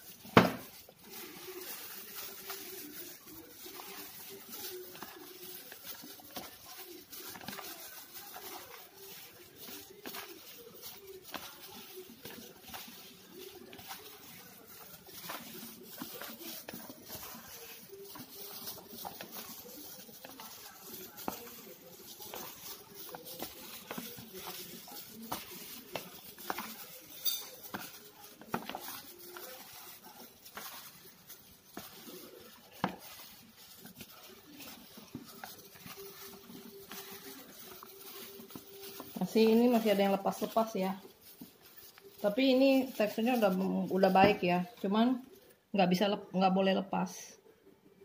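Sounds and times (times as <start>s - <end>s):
dough patted in a glass bowl: 0.0s - 47.1s.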